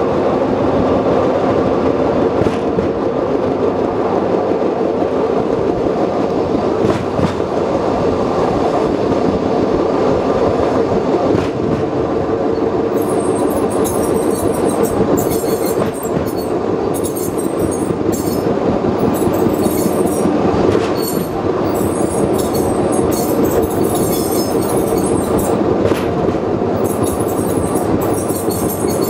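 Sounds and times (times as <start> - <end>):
steel wheels rumbling on rail: 0.0 - 29.0
clacks at rail joints: 2.4 - 3.1, 5.8 - 7.8, 10.6 - 29.0
high wheel squeal: 12.5 - 26.1, 26.8 - 29.0.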